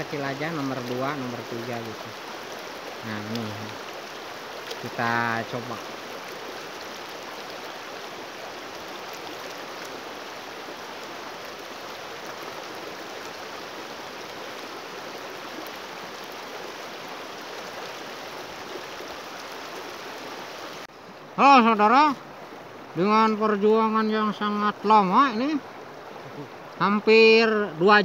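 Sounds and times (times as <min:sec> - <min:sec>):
river water flowing: 0:00.0 - 0:28.0.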